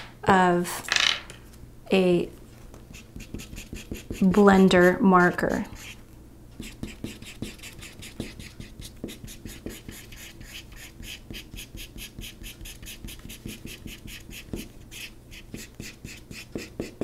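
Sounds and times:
marker scrubbing on paper: 2.9 - 6.0, 6.6 - 17.0.

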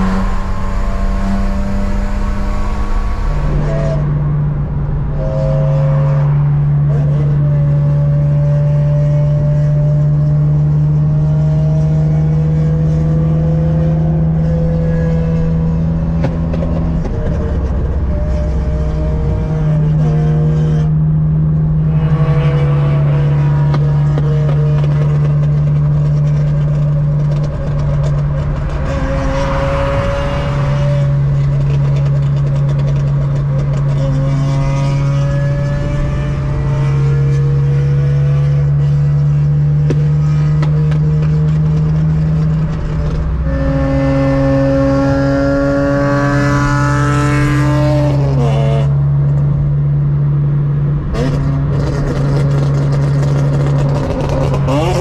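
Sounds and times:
steady low drone: 0.0 - 8.2
car engine revving: 0.0 - 55.0.

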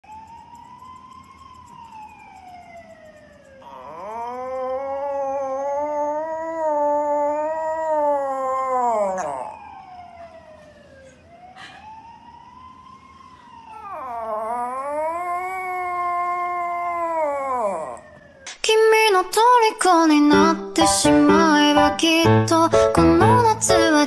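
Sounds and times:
puppy howling: 3.6 - 9.8, 13.7 - 18.2.

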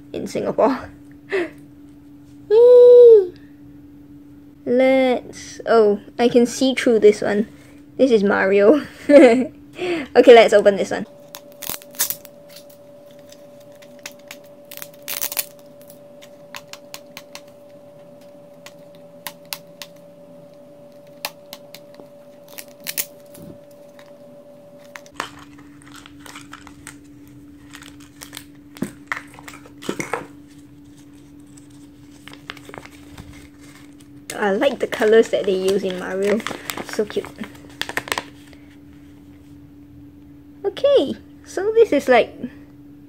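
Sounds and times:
faint steady hum: 0.0 - 43.0
plastic wrapping crinkling: 11.1 - 20.0, 20.9 - 24.1, 24.8 - 38.5.

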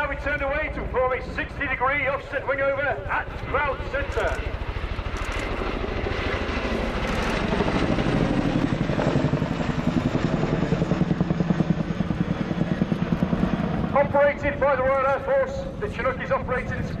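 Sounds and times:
helicopter rotor blade slap: 3.0 - 11.4.

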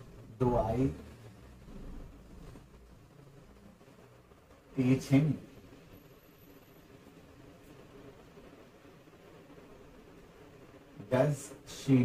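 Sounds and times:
faint low hum and hiss: 0.0 - 12.0.

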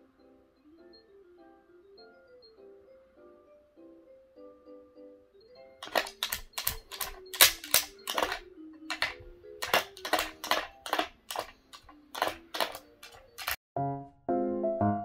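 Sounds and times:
paw tapping plastic toy: 5.8 - 13.6.

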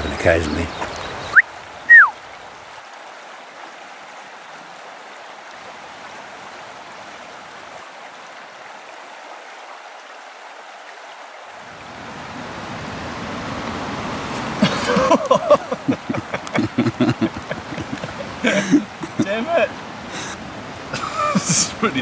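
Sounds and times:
stream rushing: 0.0 - 22.0
whistled notes: 1.3 - 2.1.

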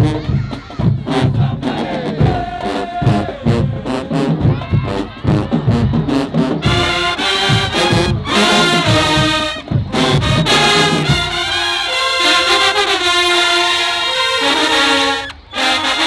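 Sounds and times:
drum hits: 0.0 - 11.4
brass chords: 0.0 - 16.0
marching band playing: 0.0 - 16.0.

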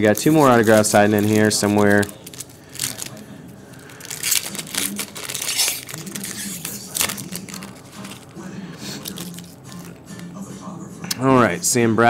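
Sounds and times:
foil wrappers tearing and crinkling: 0.0 - 10.3.

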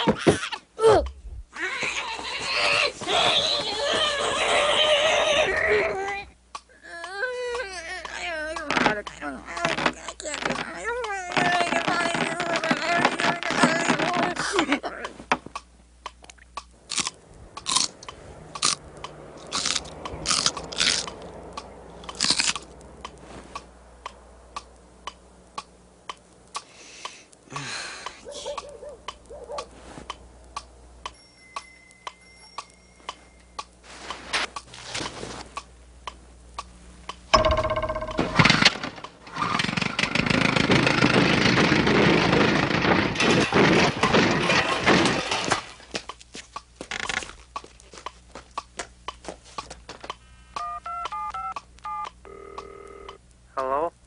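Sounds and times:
clock ticking: 15.0 - 16.7, 22.8 - 27.2
touch-tone dialing beeps: 50.6 - 53.2.

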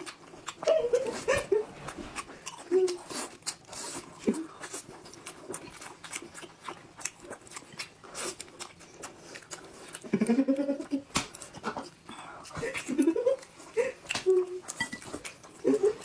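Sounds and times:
wet chewing and lip smacks: 0.0 - 16.0.

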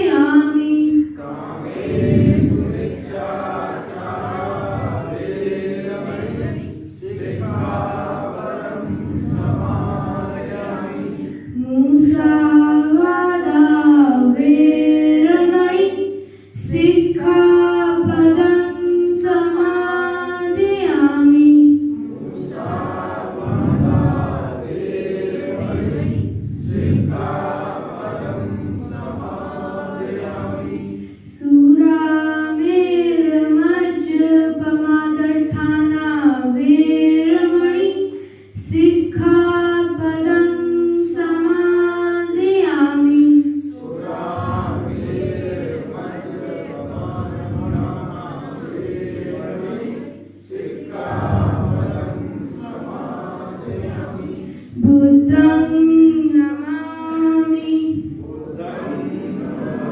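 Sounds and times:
group of voices chanting: 1.2 - 11.6, 22.0 - 31.1, 43.7 - 55.6, 57.8 - 59.9.

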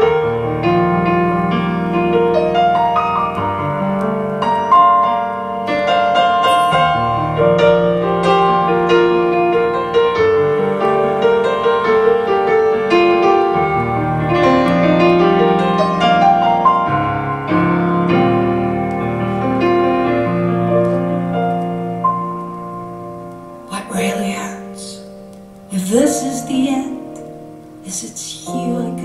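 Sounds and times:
piano chords and melody: 0.0 - 29.0.

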